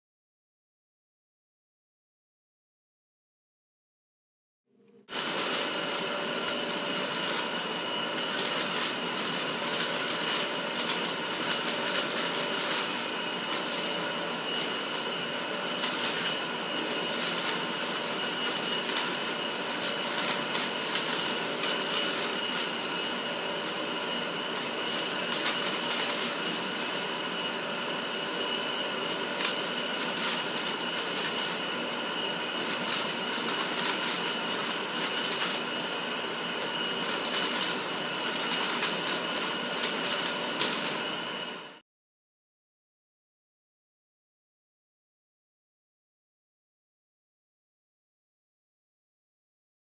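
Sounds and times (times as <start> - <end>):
electric fan running: 5.0 - 41.8.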